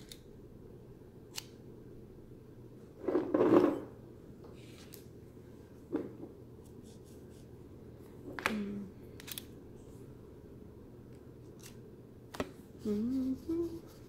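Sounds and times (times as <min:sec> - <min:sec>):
person humming: 0:08.4 - 0:09.0, 0:12.8 - 0:14.0.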